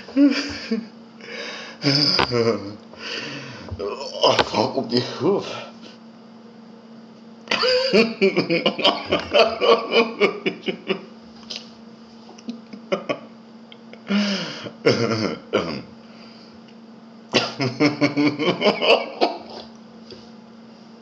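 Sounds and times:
man laughing: 0.0s - 1.0s, 1.8s - 2.8s, 7.5s - 11.1s, 12.5s - 13.4s, 14.8s - 15.5s, 17.4s - 19.6s
low electrical hum: 0.0s - 21.0s.

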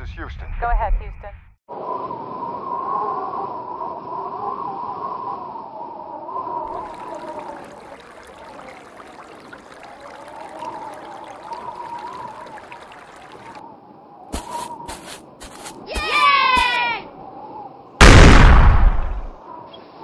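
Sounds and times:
wash of water: 6.7s - 13.6s.

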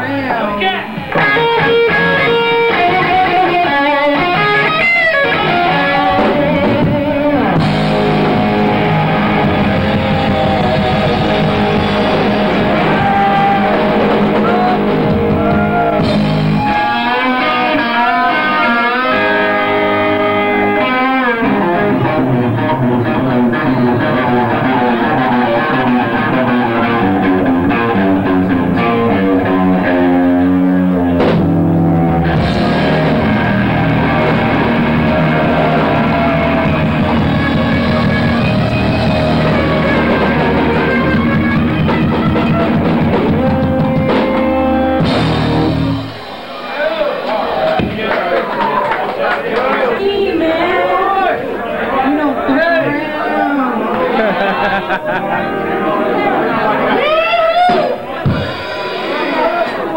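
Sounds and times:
electric guitar lead: 0.0s - 46.6s, 52.8s - 59.9s
live rock band: 0.0s - 49.1s, 52.4s - 59.9s
person singing: 7.9s - 15.8s.

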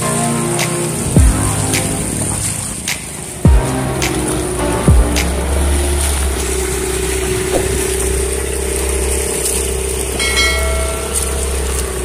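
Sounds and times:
water rushing: 0.0s - 12.0s
wind: 0.0s - 12.0s
outboard motor running: 3.5s - 12.0s.

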